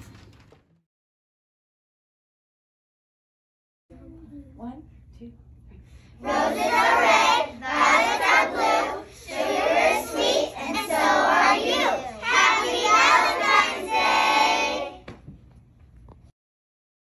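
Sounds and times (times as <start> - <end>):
children's voices in unison: 6.3 - 15.0.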